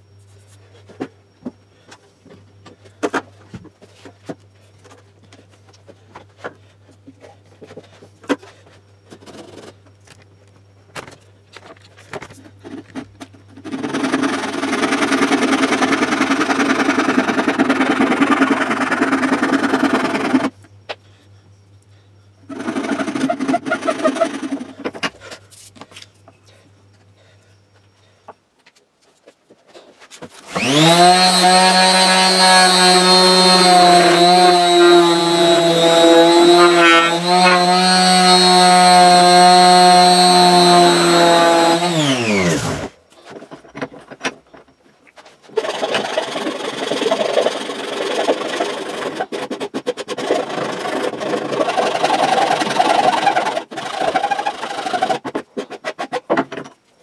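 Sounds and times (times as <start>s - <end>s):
hand saw rasping through wood: 30.4s - 42.9s, 45.6s - 56.3s.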